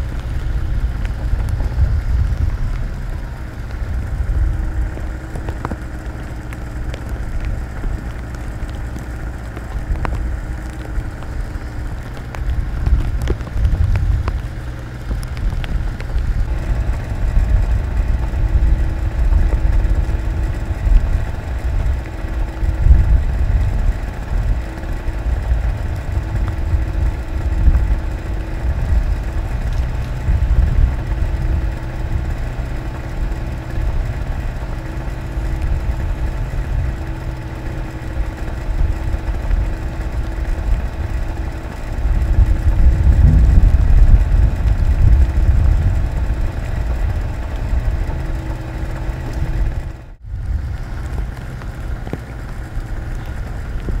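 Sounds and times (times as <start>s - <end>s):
diesel engine running under load: 0.0s - 54.0s
hydraulic whine: 0.0s - 54.0s.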